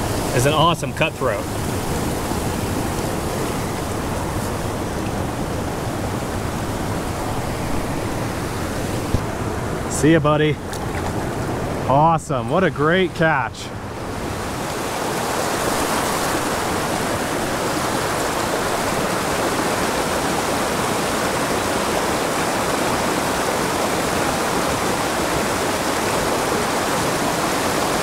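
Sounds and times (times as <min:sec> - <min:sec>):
creek rushing over rocks: 0:00.0 - 0:28.0.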